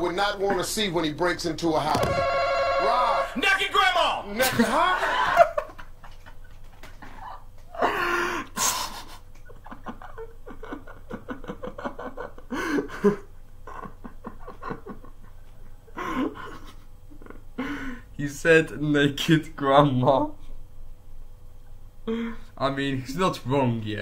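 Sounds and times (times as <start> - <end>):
man laughing: 4.3 - 17.9.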